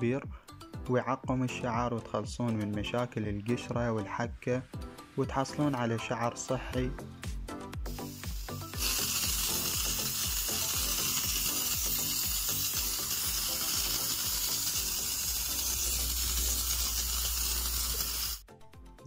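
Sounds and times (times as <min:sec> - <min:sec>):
background music with beat: 0:00.0 - 0:19.0
steam device hissing: 0:07.9 - 0:18.4.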